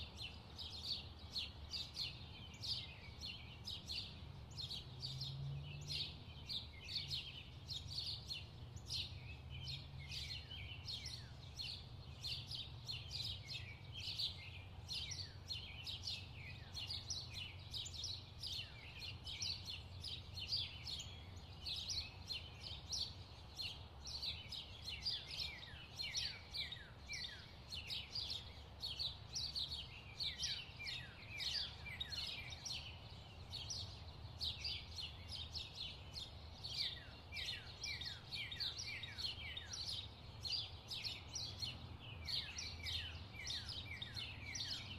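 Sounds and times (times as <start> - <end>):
songbirds chirping and singing: 0.0 - 44.9.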